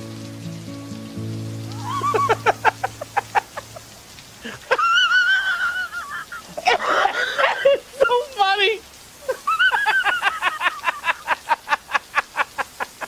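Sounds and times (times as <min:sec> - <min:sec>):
cackling laughter: 0:01.8 - 0:08.0, 0:09.2 - 0:13.0.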